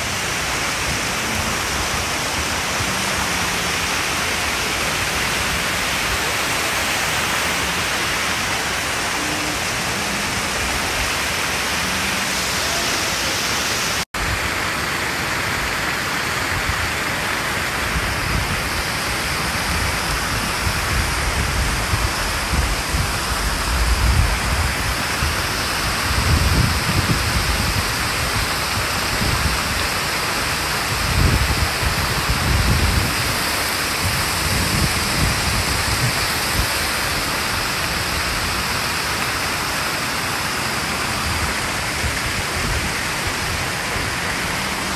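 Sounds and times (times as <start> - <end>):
waterfall pouring into pool: 0.0 - 44.9
wind buffeting microphone: 17.8 - 38.6.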